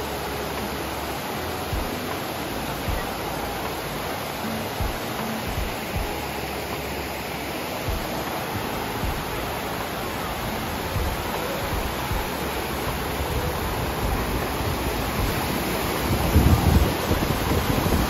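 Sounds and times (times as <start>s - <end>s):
stream splashing over rocks: 0.0s - 18.0s
low thumps: 1.7s - 3.1s, 4.8s - 6.4s, 7.9s - 9.5s, 10.4s - 18.0s.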